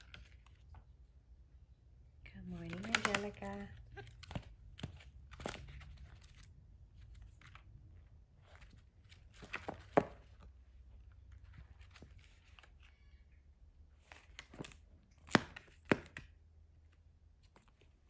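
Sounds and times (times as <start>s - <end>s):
book pages flicking and rustling: 0.0s - 0.8s, 2.6s - 7.7s, 8.4s - 10.6s, 11.2s - 12.9s, 14.0s - 16.3s.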